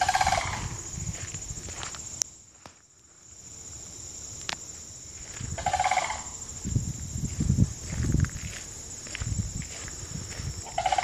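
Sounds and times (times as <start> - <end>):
cranes giving rolling calls: 0.0 - 0.9, 5.4 - 6.4, 10.6 - 11.0
footsteps on dirt track: 0.0 - 3.3, 4.4 - 5.7, 6.5 - 11.0
high insect drone: 0.0 - 11.0.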